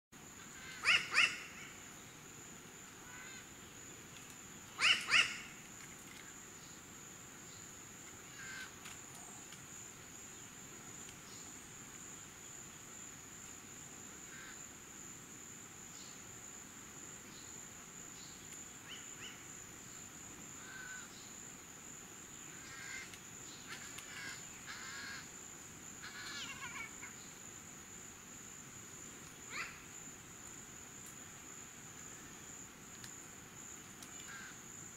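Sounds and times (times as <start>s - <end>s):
crows calling: 0.5s - 1.8s, 3.0s - 3.5s, 4.8s - 5.6s, 8.3s - 8.8s, 14.3s - 14.6s, 20.6s - 21.1s, 22.6s - 25.3s, 26.0s - 27.1s, 29.5s - 29.8s, 34.2s - 34.6s.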